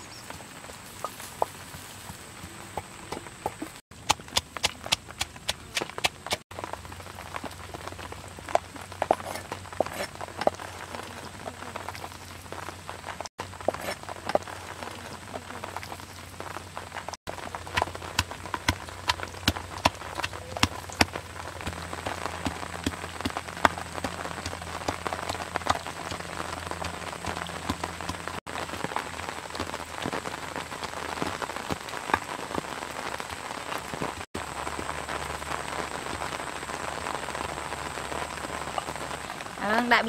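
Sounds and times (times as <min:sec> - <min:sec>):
patter and hiss: 0:00.0 - 0:03.8
pestle pounding in a mortar: 0:03.1 - 0:06.4, 0:17.6 - 0:28.3.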